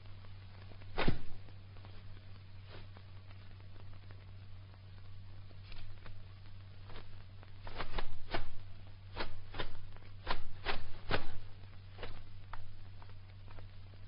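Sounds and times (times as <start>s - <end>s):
low hum: 0.0s - 14.0s
kicks slapping and thudding: 0.9s - 1.6s, 7.6s - 12.7s.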